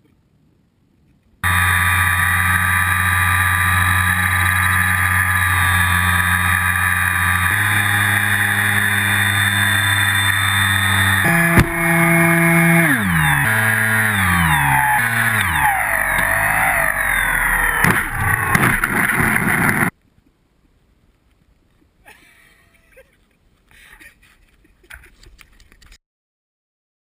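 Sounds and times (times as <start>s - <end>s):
electric motor and propeller whine: 1.4s - 19.9s.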